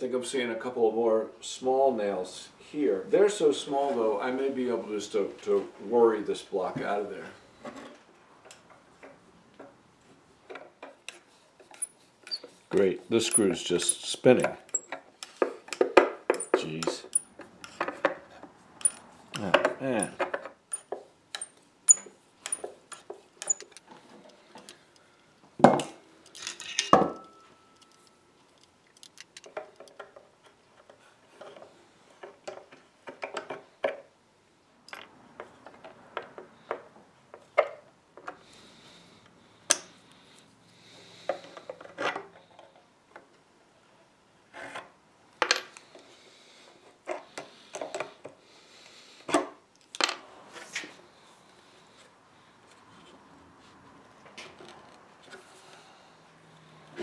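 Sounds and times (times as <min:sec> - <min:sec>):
steel tools scraping and tapping: 0:11.1 - 0:12.6, 0:13.2 - 0:18.2, 0:18.8 - 0:23.9.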